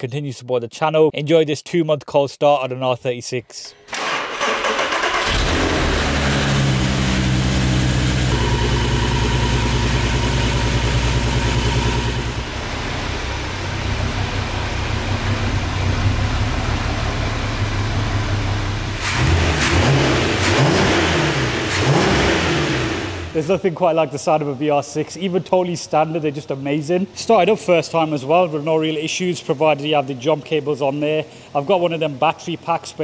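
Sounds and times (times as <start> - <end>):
car engine revving: 4.4 - 23.4
car engine idling: 4.6 - 23.5.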